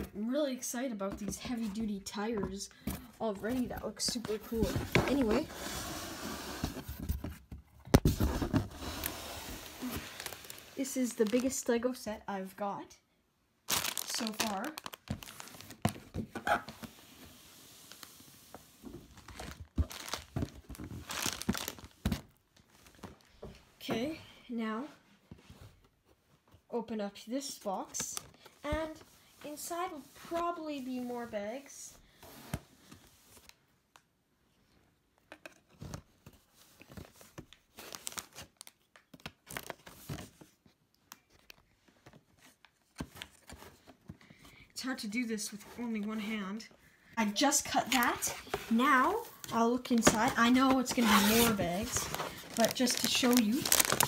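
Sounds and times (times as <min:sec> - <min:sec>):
plastic bags crinkling: 0:09.9 - 0:11.7, 0:13.7 - 0:16.0, 0:19.2 - 0:22.0, 0:49.4 - 0:54.0.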